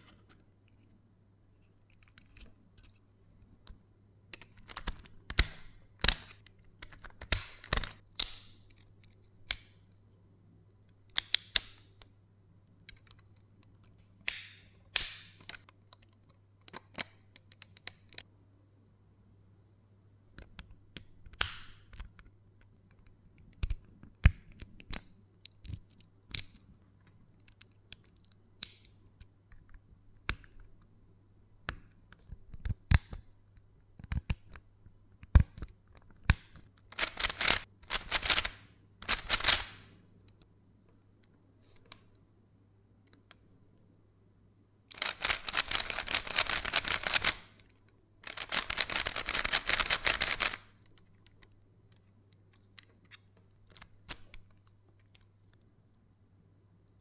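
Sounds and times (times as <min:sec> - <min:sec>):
plastic clicks of cube pieces: 0:03.6 - 0:09.9, 0:12.8 - 0:18.2, 0:20.3 - 0:30.9, 0:31.6 - 0:40.5, 0:44.9 - 0:56.0
speed cube turning rapidly: 0:37.0 - 0:39.9, 0:44.9 - 0:47.6, 0:48.2 - 0:50.7.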